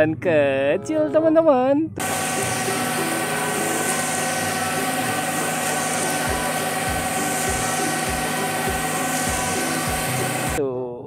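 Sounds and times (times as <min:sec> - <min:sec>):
concrete mixer drum drone: 0:02.0 - 0:10.6.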